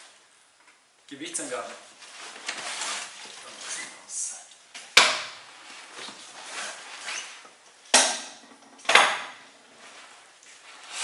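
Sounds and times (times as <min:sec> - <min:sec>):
backpack fabric rustling: 0:01.9 - 0:04.1, 0:05.5 - 0:07.5.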